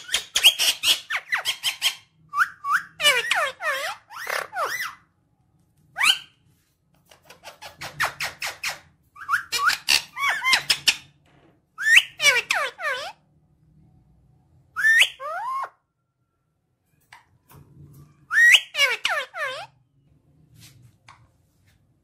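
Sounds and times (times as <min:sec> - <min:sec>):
parakeet chattering and squawking: 0:00.0 - 0:05.1, 0:06.0 - 0:06.4, 0:07.1 - 0:11.2, 0:11.8 - 0:13.3, 0:18.2 - 0:19.8.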